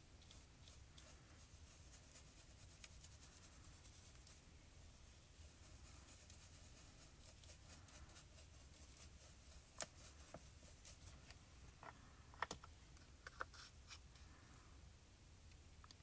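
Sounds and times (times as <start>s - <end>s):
brush tapping plastic pot: 0.0s - 4.4s, 5.4s - 12.5s
brush dabbing over stencil: 0.0s - 12.1s, 13.1s - 14.3s.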